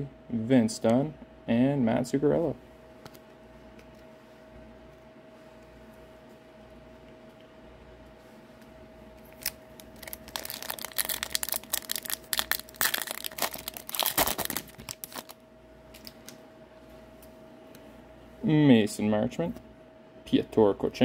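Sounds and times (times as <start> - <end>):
foil wrapper crinkling and tearing: 9.3 - 16.3.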